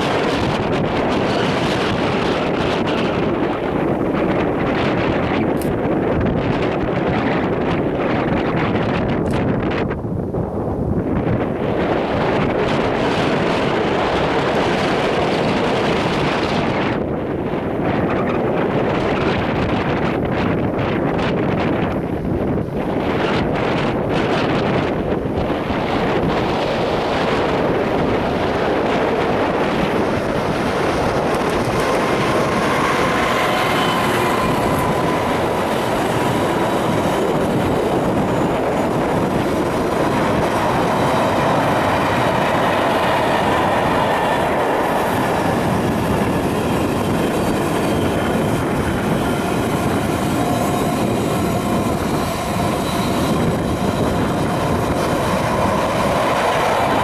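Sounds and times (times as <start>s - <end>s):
diesel locomotive engine: 0.0s - 57.0s
train wheels rumbling on rail: 0.0s - 57.0s
faint high wheel squeal: 49.2s - 54.8s.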